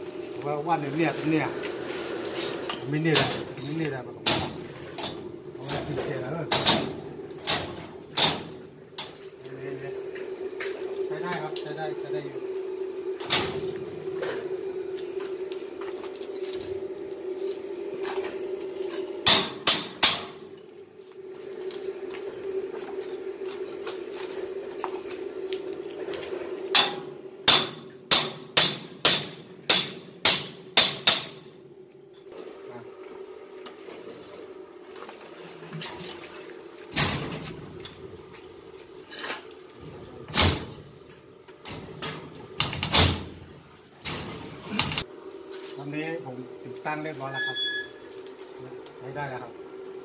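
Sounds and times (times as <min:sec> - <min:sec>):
hammer striking steel frame: 0:06.5 - 0:08.6, 0:19.2 - 0:20.4, 0:26.7 - 0:31.5.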